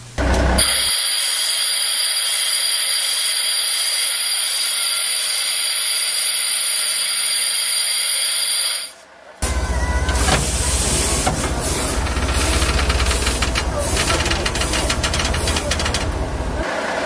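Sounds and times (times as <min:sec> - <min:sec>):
compressed air hissing from valve: 0:10.1 - 0:15.7.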